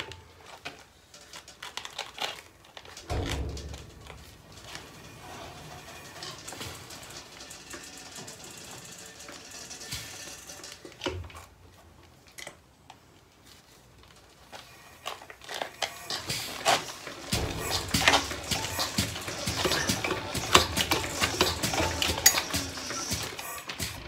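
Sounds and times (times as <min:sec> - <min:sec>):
diesel engine metallic clatter: 0:03.0 - 0:11.0.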